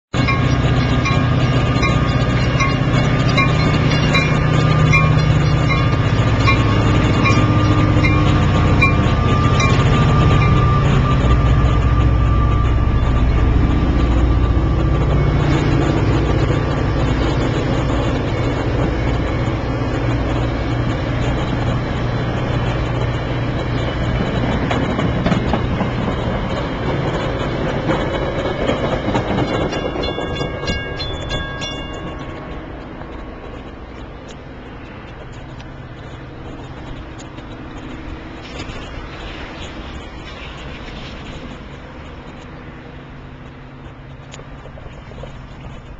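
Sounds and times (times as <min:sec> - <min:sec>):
diesel locomotive running: 0:00.0 - 0:45.9
train coaches rolling past: 0:00.1 - 0:45.9
crossing bell ringing: 0:00.2 - 0:21.2, 0:24.4 - 0:33.7.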